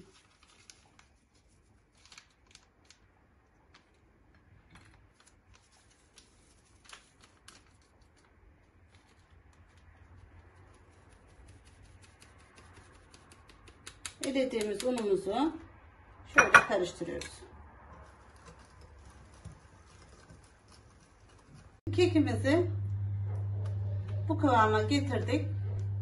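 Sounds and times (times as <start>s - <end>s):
flour rubbed through wire sieve: 10.0s - 13.5s.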